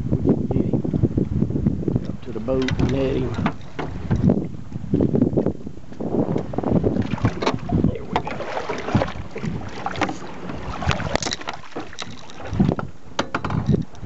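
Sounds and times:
wind buffeting microphone: 0.0 - 14.0
water splashing beside boat hull: 2.0 - 14.0
knocks and clatter of handling: 2.6 - 4.3, 10.9 - 14.0.

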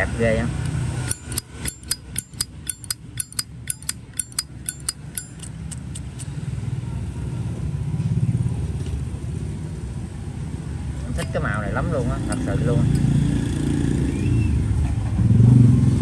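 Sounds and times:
lighter lid clicking open and shut: 1.1 - 6.3
passing vehicle rumble: 5.6 - 16.0.

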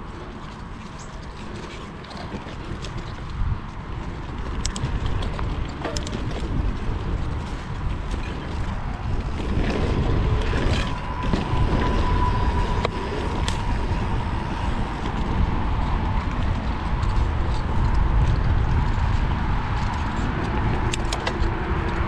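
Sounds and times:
bike clicks and rattles: 0.0 - 22.0
bike tyres rumbling on dirt: 0.0 - 22.0
wind on microphone: 0.0 - 22.0
thin steady whine: 8.2 - 18.1.

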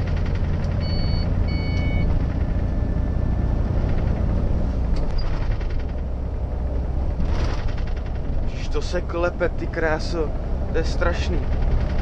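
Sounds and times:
cab rattling: 0.0 - 0.9, 3.4 - 12.0
diesel truck engine pulling hard: 0.0 - 12.0
short electronic beeps: 0.8 - 2.1.

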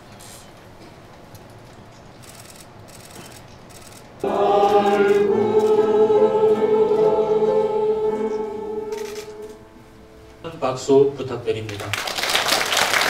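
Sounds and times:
mixed choir singing: 4.2 - 10.2.

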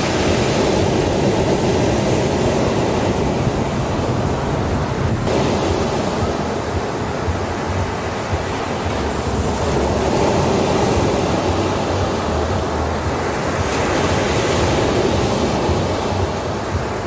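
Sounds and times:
surf washing up beach: 0.0 - 17.0.

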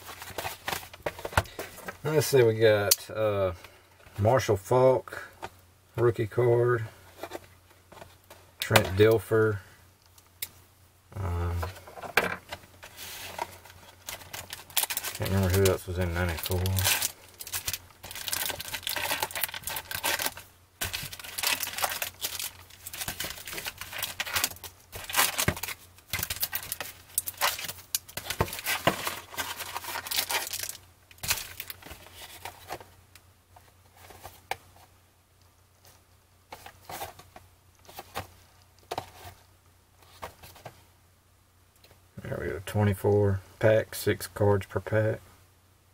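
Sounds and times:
foil wrappers crinkling: 12.8 - 32.8.

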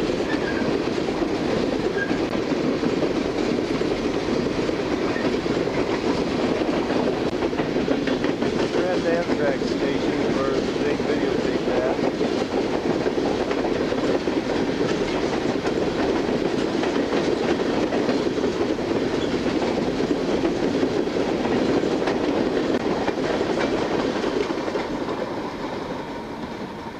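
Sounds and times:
train wheels rumbling on rails: 0.0 - 26.9
wheels clicking over track joints: 0.1 - 25.3.

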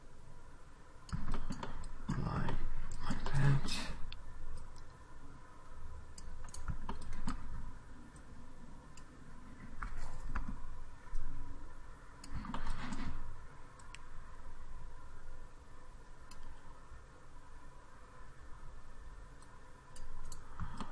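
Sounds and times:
faint steady hum: 0.0 - 20.9
computer mouse clicks: 1.0 - 3.4, 4.1 - 5.0, 6.1 - 8.3, 8.9 - 9.1, 9.7 - 11.3, 12.2 - 13.2, 13.8 - 14.1, 16.2 - 16.7, 19.4 - 20.9
keyboard clicks: 1.1 - 3.4, 6.1 - 7.5, 9.8 - 11.3, 12.2 - 13.2, 16.2 - 16.6, 19.4 - 20.9.

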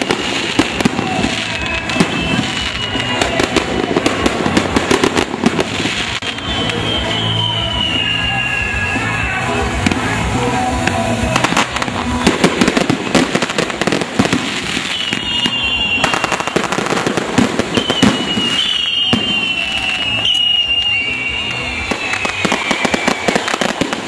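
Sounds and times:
high whistle falling in pitch: 0.0 - 5.2, 6.0 - 9.5, 14.6 - 24.0
fireworks crackling and popping: 0.0 - 24.0.

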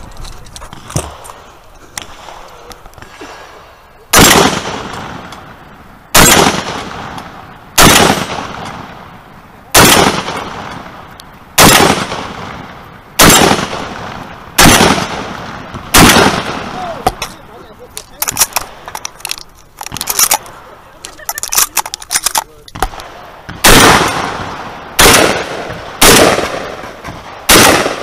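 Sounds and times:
shotgun blasts: 4.1 - 9.1, 9.7 - 11.0, 11.6 - 17.4, 22.7 - 28.0.

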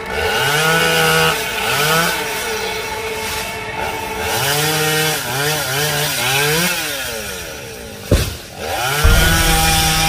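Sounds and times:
chainsaw revving: 0.0 - 3.0, 3.8 - 9.5
sharp knock: 9.0 - 10.0.

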